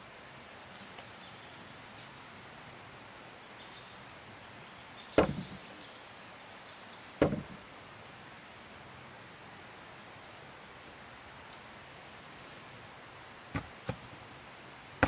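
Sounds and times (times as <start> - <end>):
heavy wooden beam thudding: 5.2 - 5.6, 7.2 - 7.6, 13.5 - 14.0
wooden rebound knocks: 5.2 - 5.6, 7.2 - 7.6, 13.5 - 14.0.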